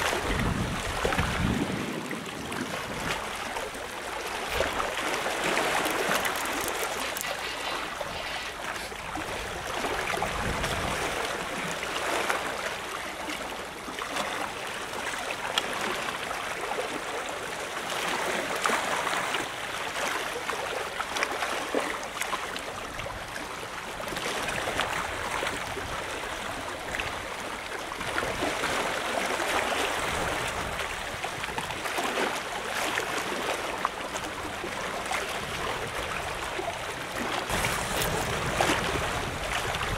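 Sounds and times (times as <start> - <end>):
sea water splashing against wall: 0.0 - 12.6, 37.2 - 39.9.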